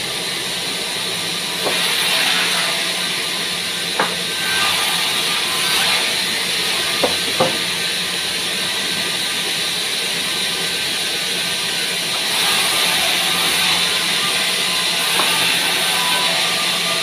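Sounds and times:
band saw running: 0.0s - 17.0s
wooden knocks: 4.0s - 4.3s, 7.0s - 7.7s.

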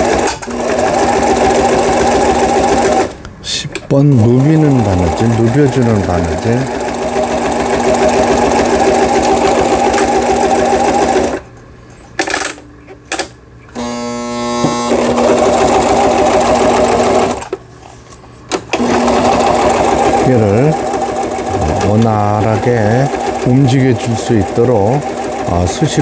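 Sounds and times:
sewing machine stitching: 0.0s - 3.2s, 4.0s - 11.4s, 14.8s - 17.5s, 18.7s - 26.0s.

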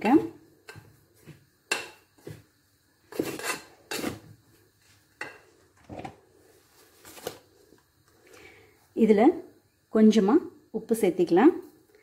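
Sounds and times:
spoon scraping a metal bowl: 3.1s - 4.3s.

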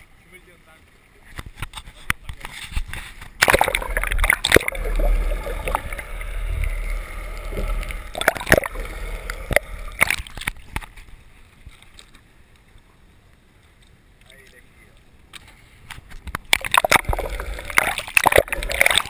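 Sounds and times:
splash into water: 3.4s - 6.0s, 7.5s - 8.9s, 16.5s - 19.0s
muffled underwater gurgling: 3.4s - 10.3s, 16.5s - 19.0s
sharp splashes: 3.4s - 10.6s, 16.5s - 19.0s.

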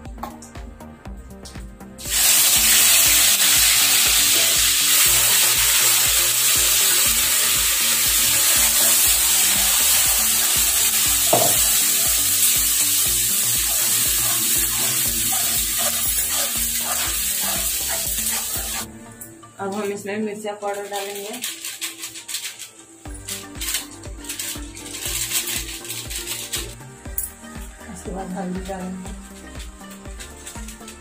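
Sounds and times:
paste sizzling in hot oil: 2.0s - 18.9s, 20.8s - 31.0s
spatula stirring: 4.2s - 18.9s, 20.7s - 26.8s, 29.0s - 31.0s.

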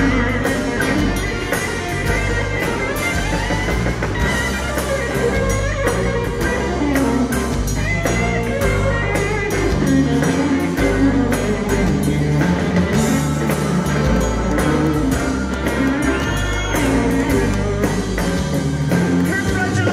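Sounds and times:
bass guitar: 0.0s - 19.9s
drums: 0.0s - 19.9s.

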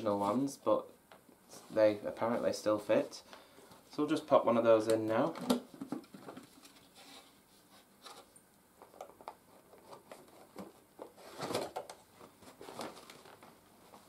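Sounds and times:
paper bag crinkling: 11.2s - 14.0s.

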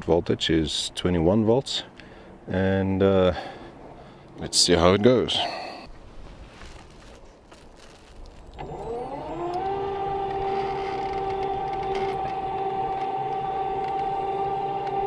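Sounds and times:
electric motor whine: 8.4s - 15.0s.

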